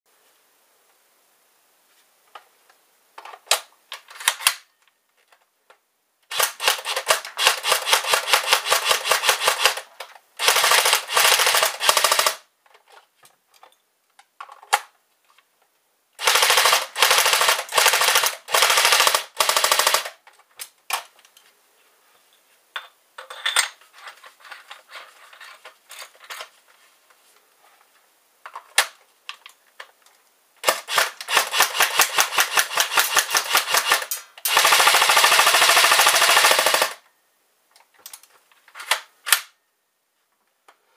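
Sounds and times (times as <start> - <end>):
airsoft gun firing: 10.4 - 12.4, 16.2 - 20.1, 30.6 - 37.0.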